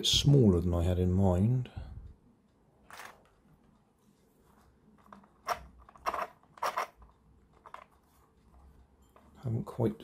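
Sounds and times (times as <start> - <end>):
plastic parts clicking: 5.0 - 8.0.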